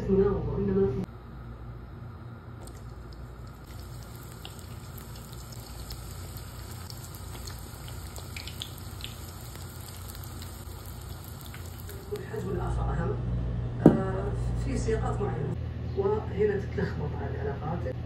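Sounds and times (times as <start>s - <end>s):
pastry sizzling in hot oil: 2.6s - 12.6s.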